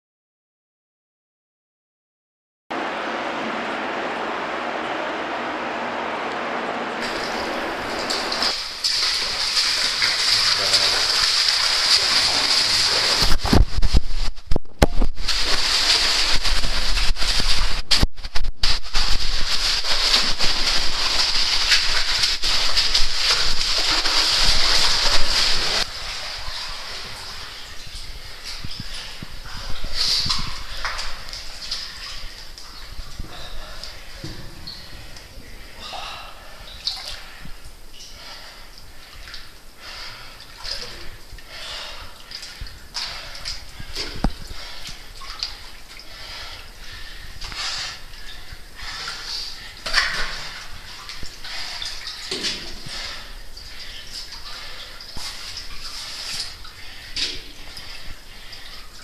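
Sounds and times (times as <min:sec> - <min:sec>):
stream rushing in a cave: 0:02.8 - 0:14.3, 0:14.9 - 0:59.0
person wading through water: 0:06.4 - 0:14.3, 0:15.0 - 0:59.0
splashing and scraping on wet rock: 0:08.4 - 0:14.1, 0:15.2 - 0:27.4.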